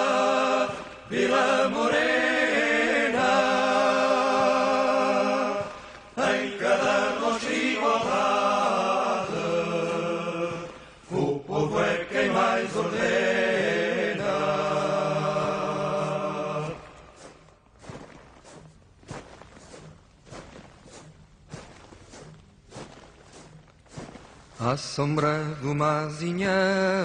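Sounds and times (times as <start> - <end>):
a cappella choir singing: 0.0 - 17.2.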